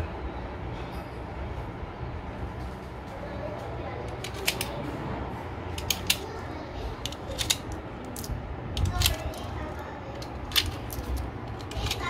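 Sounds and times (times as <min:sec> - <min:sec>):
cartridges clicking into magazine: 0:07.1 - 0:09.2.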